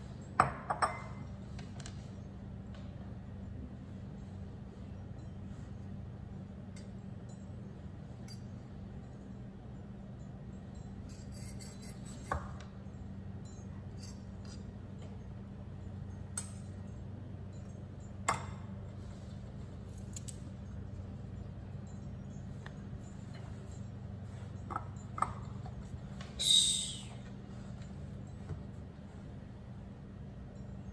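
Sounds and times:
low hum: 0.0s - 30.9s
cutlery clinking on a plate: 21.7s - 26.2s.

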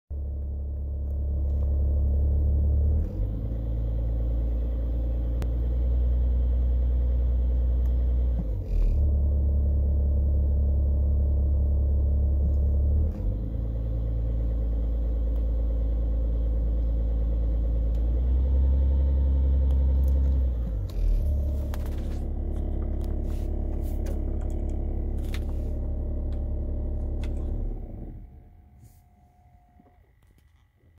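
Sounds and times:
diesel engine idling: 9.0s - 29.0s.

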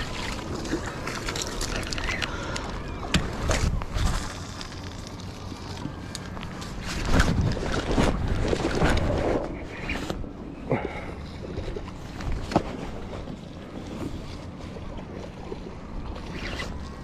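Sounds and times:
wind noise on microphone: 6.8s - 10.3s.

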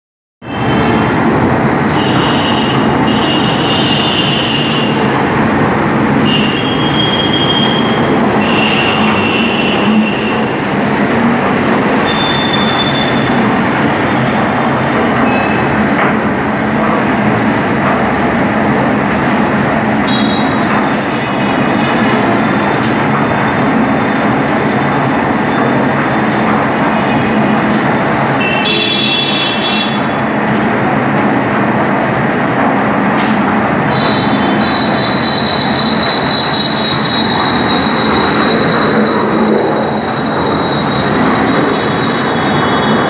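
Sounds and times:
steady machinery noise: 0.4s - 43.0s
short high-pitched squeals: 12.0s - 13.4s, 33.9s - 43.0s.

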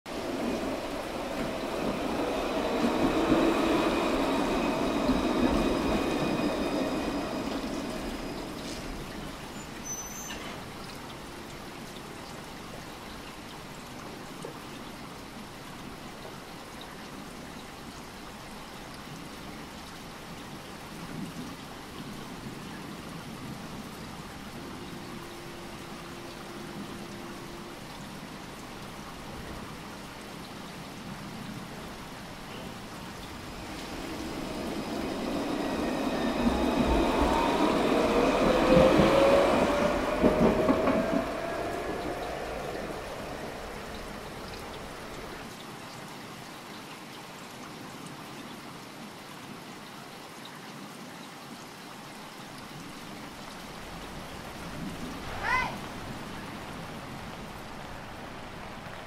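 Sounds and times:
tram arriving with whining motor: 0.1s - 12.1s, 31.9s - 45.5s
steady hiss: 0.1s - 45.8s.

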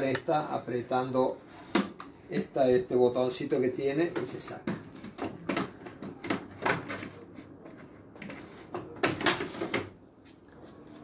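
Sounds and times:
plastic drawer clacks and knocks: 4.0s - 7.2s, 8.2s - 9.9s.

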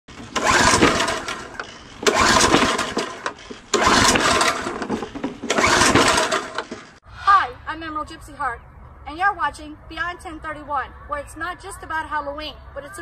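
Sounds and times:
lawn mower engine surging: 0.1s - 7.0s.

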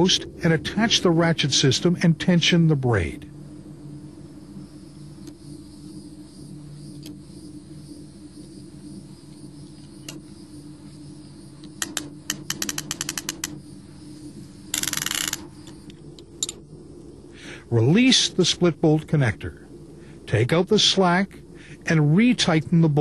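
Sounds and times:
low steady hum: 0.0s - 23.0s
ratchet clicking: 11.8s - 13.6s, 14.7s - 15.8s.

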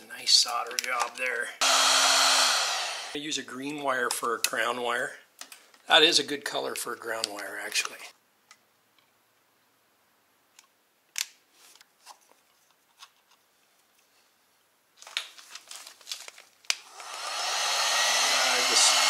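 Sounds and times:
heat gun fan hiss: 1.6s - 3.2s, 16.9s - 19.0s.

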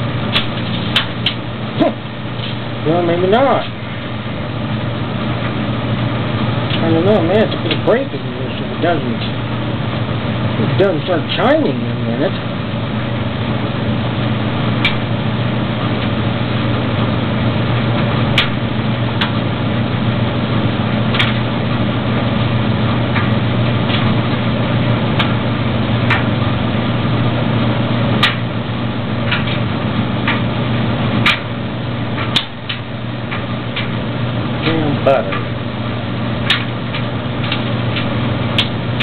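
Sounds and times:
dryer motor and drum hum: 0.0s - 39.0s.

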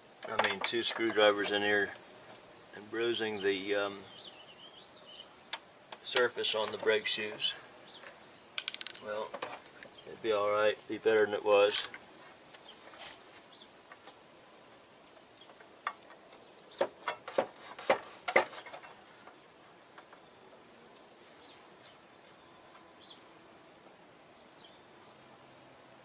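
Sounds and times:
metallic clicks and knocks: 8.6s - 9.6s.

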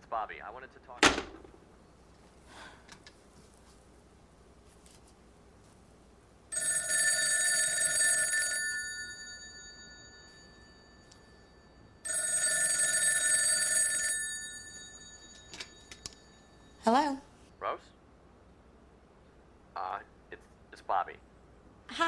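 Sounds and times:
telephone bell ringing: 6.5s - 16.8s.

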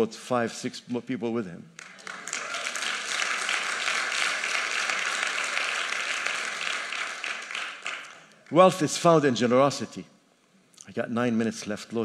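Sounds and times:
congregation clapping: 1.7s - 9.4s.

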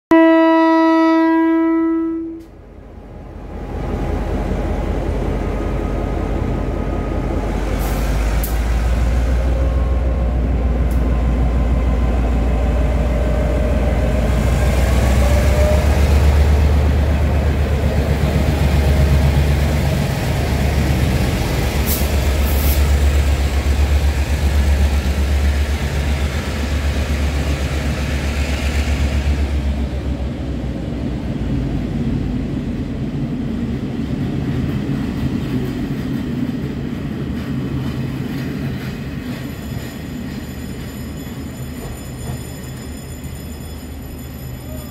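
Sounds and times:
train horn: 0.1s - 2.6s.

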